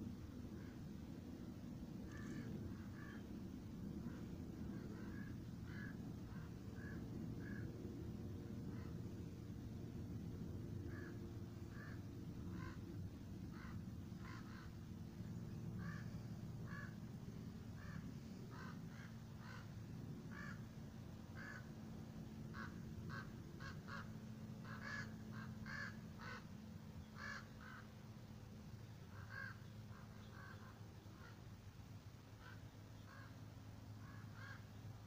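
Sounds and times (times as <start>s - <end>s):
low steady rumble: 0.0s - 35.0s
flock of birds calling: 2.0s - 3.3s, 3.9s - 7.7s, 10.9s - 12.9s, 13.5s - 17.0s, 17.8s - 20.6s, 22.5s - 26.5s.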